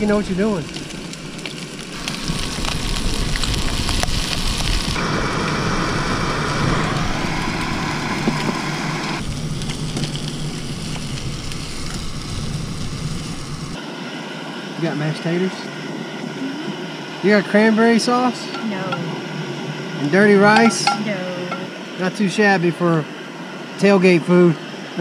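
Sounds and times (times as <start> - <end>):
food frying: 0.0 - 13.8
stove flame hissing: 0.0 - 25.0.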